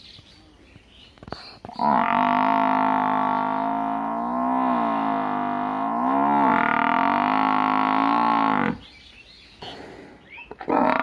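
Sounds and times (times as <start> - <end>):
water buffalo mooing: 1.8 - 8.8, 10.6 - 11.0
soft breathy noise: 9.5 - 10.4.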